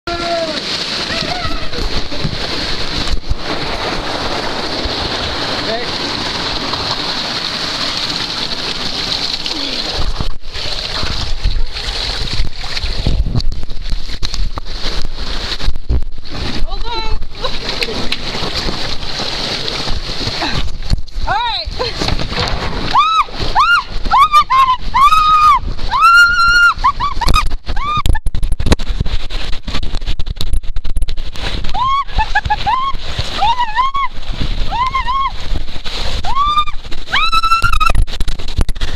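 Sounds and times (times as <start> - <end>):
water rushing: 0.0 - 38.9
rider sliding down waterslide: 0.1 - 38.9
woman screaming: 22.9 - 28.1, 31.7 - 34.1, 34.7 - 35.4, 36.2 - 38.0.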